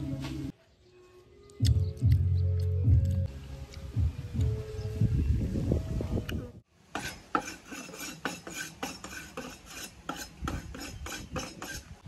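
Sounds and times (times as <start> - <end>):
rhythmic rasping scrapes: 7.0 - 12.0.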